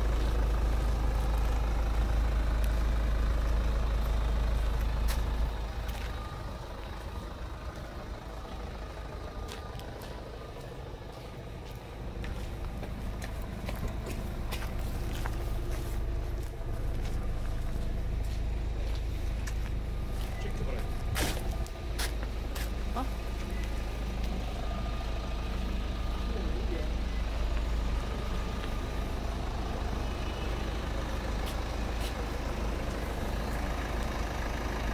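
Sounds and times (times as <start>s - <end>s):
diesel engine idling: 0.0s - 34.9s.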